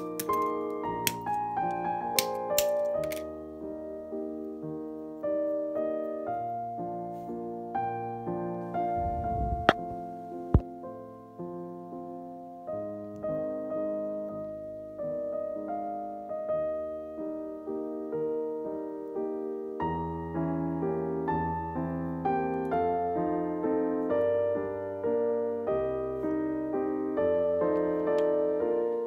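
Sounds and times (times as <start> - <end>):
piano music: 0.0 - 29.0
deep piano bass notes: 3.3 - 19.2.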